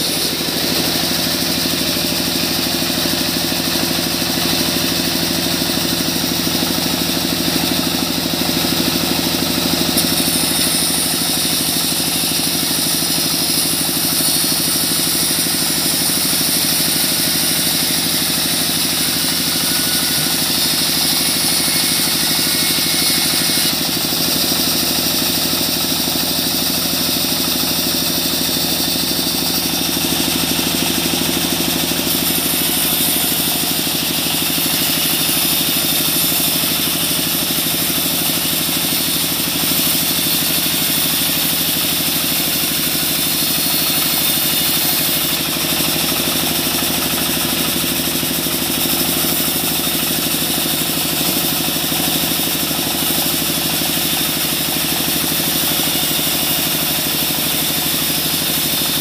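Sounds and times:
band saw cutting wood: 0.0s - 59.0s.

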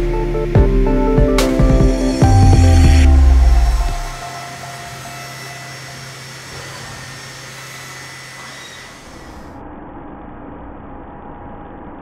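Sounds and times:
milling machine whirring: 1.4s - 9.6s.

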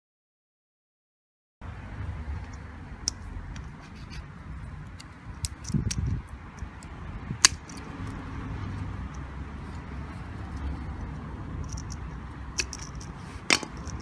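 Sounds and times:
pliers clicking on plastic: 4.9s - 8.2s.

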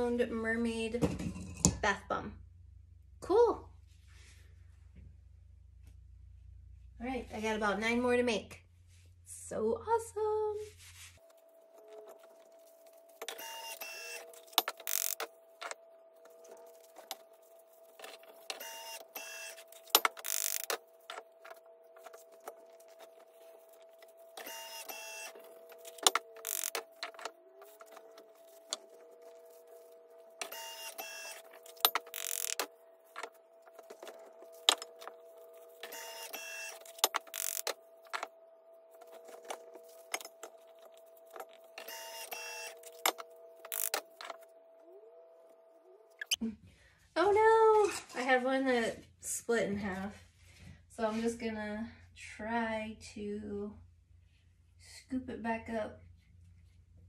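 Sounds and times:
faint hum: 11.2s - 47.0s
bath bomb press whirring: 13.0s - 38.3s.

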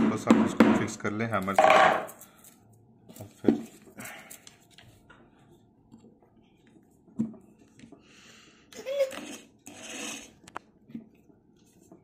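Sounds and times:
tools knocking on plywood board: 1.6s - 2.1s.

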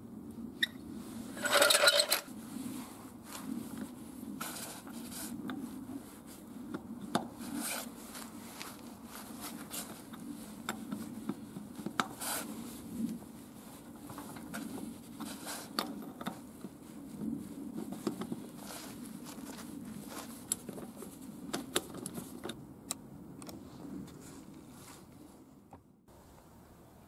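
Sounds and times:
tire lever scraping metal rim: 0.6s - 2.3s, 6.7s - 13.2s, 13.8s - 22.6s.

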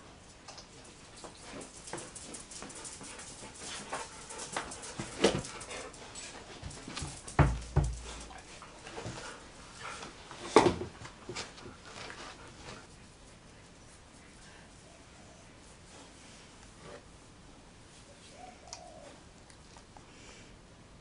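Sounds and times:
dog jumping onto chair thumps: 7.1s - 8.2s.

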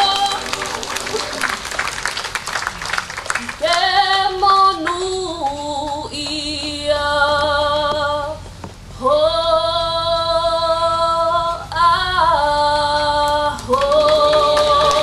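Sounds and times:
choir singing long chords: 0.0s - 2.7s, 13.8s - 15.0s.

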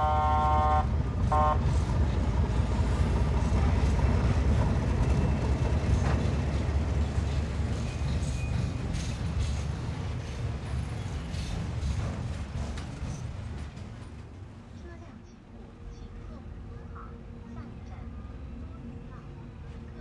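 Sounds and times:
locomotive horn blasts: 0.0s - 1.9s
locomotive engine and wheels rumbling: 0.0s - 20.0s.

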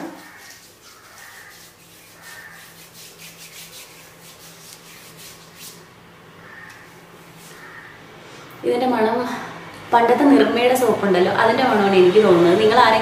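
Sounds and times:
hand rubbing cream into skin: 0.0s - 5.9s.

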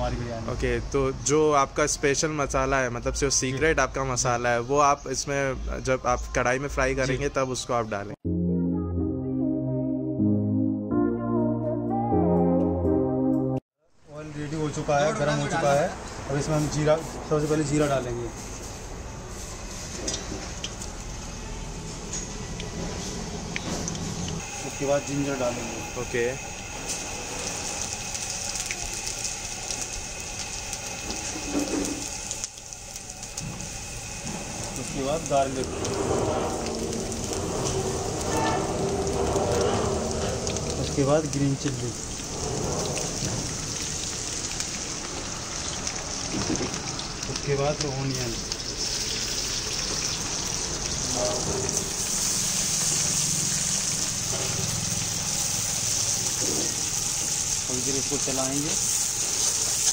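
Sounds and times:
spices sizzling in hot oil: 14.2s - 59.9s
gas burner flame rushing: 14.7s - 59.9s.

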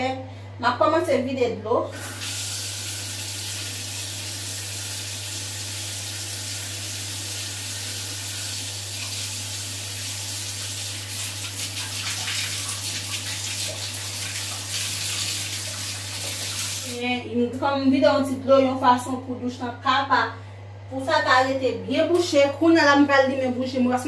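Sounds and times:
water pouring into bathtub: 2.2s - 16.9s.

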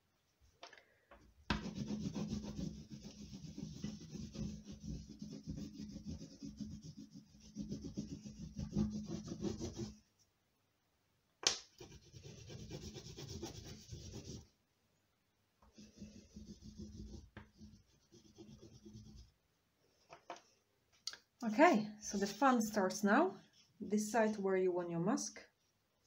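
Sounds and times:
oil pastel rubbing on paper: 1.5s - 10.1s, 11.7s - 14.5s, 15.8s - 19.3s.

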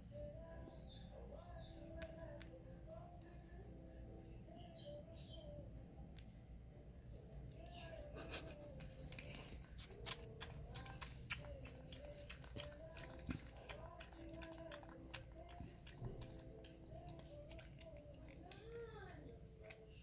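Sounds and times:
puppy lapping milk: 8.7s - 20.0s.

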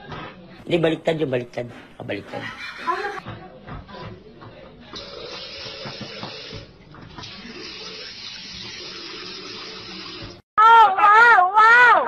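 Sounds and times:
faucet water splashing into basin: 5.0s - 10.4s.

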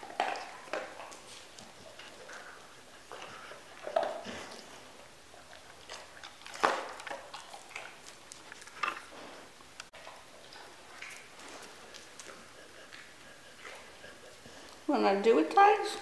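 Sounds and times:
puppy chewing: 0.0s - 14.9s
puppy sniffing: 10.4s - 15.6s.

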